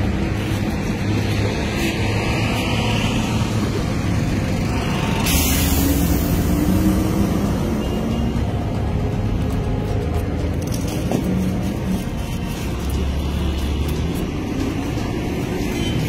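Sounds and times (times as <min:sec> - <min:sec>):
vehicle engine rumbling: 0:00.0 - 0:16.0
hiss: 0:05.0 - 0:07.0.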